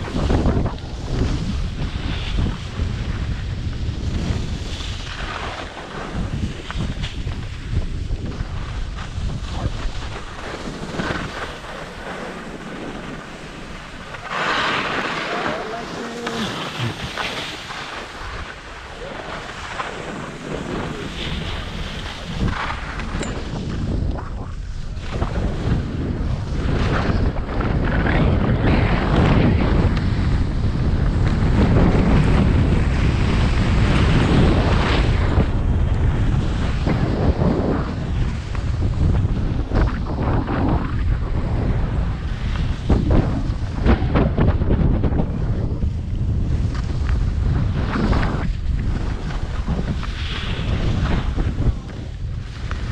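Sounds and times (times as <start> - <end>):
skis scraping: 0.0 - 52.9
wind on microphone: 0.0 - 52.9
skis hissing over snow: 4.0 - 23.2, 47.8 - 52.9.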